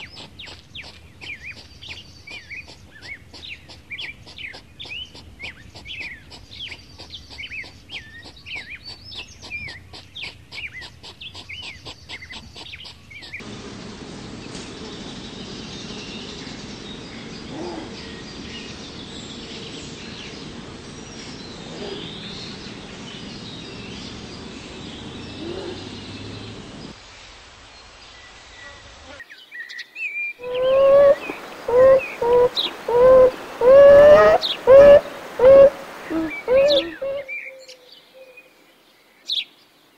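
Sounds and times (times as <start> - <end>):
small birds chirping: 0.0 - 13.4, 14.4 - 27.0, 27.8 - 39.9
steady background hiss: 13.4 - 39.9.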